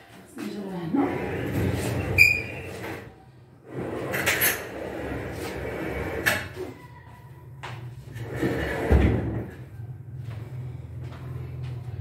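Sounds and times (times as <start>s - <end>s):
refrigerator scraping across floor: 0.9s - 6.4s, 8.1s - 9.5s.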